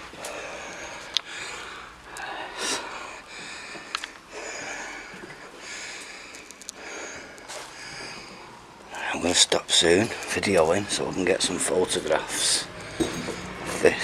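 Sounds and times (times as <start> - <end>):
person breathing close to microphone: 0.0 - 9.1, 12.6 - 14.0.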